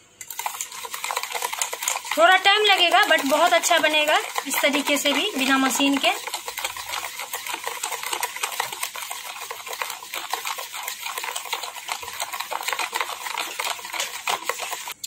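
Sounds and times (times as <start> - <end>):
spoon whisking in metal bowl: 0.2 - 15.0.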